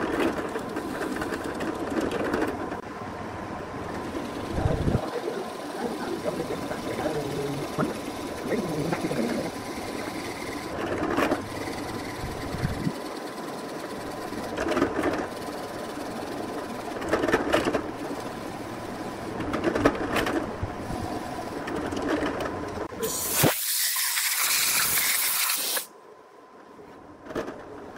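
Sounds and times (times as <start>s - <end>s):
drill press motor whine: 4.0s - 10.8s.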